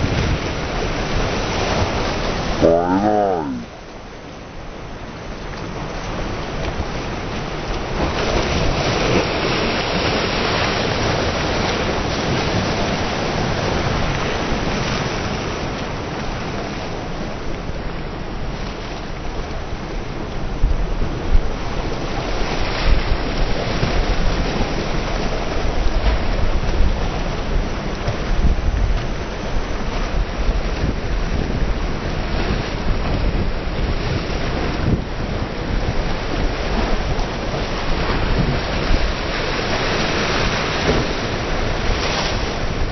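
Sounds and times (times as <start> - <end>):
wind buffeting the microphone: 0.0 - 2.6, 5.3 - 42.9
sea surf breaking: 0.0 - 3.7, 30.0 - 42.9.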